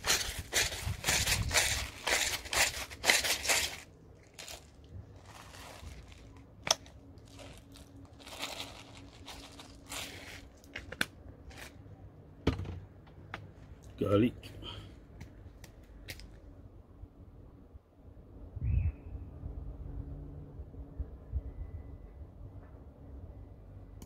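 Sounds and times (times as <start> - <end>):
crinkling rustling handling noise: 0.0 - 11.9.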